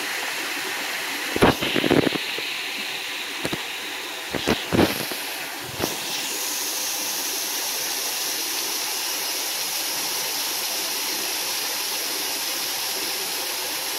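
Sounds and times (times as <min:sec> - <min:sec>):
waterfall splashing into pond: 0:00.0 - 0:13.9.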